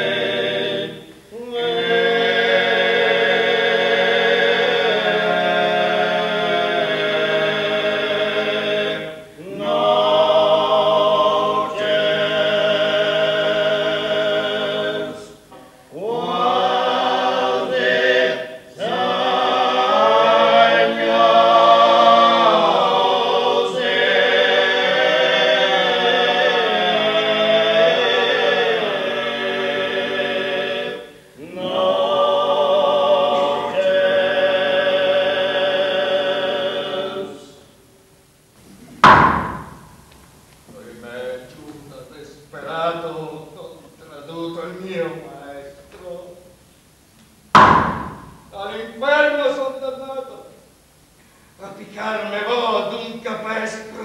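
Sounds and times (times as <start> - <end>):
male vocal quartet singing: 0.0 - 37.8, 51.6 - 54.0.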